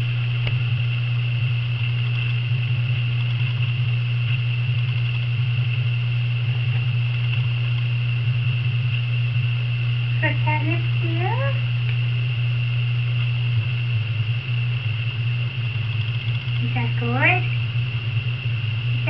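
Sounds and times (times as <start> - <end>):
faint high whine: 0.0 - 19.0
steady low hum: 0.0 - 19.0.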